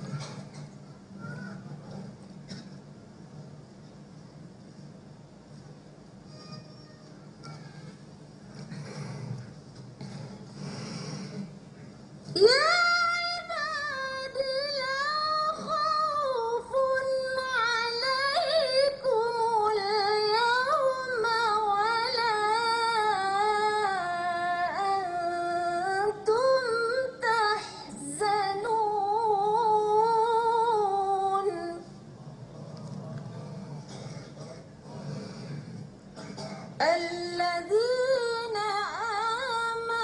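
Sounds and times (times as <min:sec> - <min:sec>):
woman reciting melodically: 0:12.3 - 0:32.1, 0:36.8 - 0:40.0.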